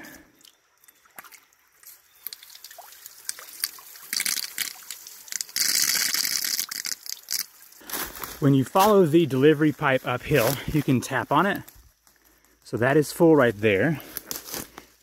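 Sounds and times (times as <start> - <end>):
faint trickle of creek water: 0.0 - 7.9.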